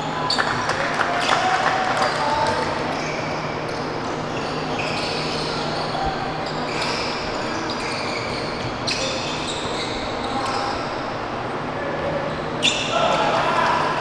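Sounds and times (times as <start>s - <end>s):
sneakers squeaking on court: 2.4s - 11.1s, 12.0s - 12.9s.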